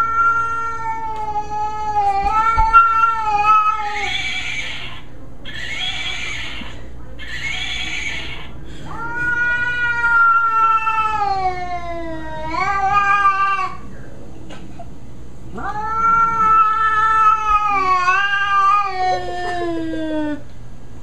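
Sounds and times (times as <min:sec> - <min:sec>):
cat yowling: 0:00.0 - 0:13.8, 0:15.6 - 0:20.4
cat hissing: 0:02.3 - 0:11.4, 0:15.5 - 0:20.4.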